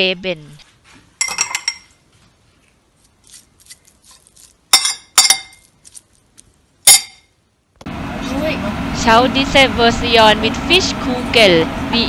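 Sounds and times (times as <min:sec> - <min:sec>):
cutlery clinking on ceramic bowl: 0:01.2 - 0:02.0, 0:04.7 - 0:05.7, 0:06.9 - 0:07.3.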